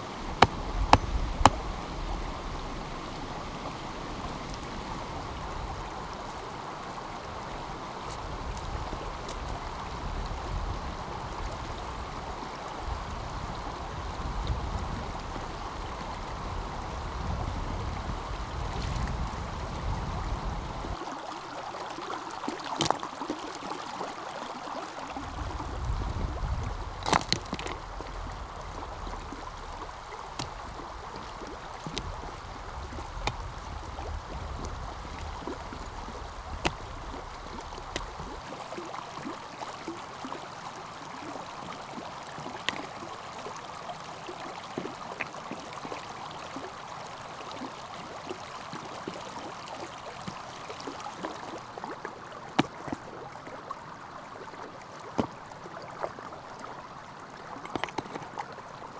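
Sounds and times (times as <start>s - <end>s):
stream rushing water: 0.0s - 58.9s.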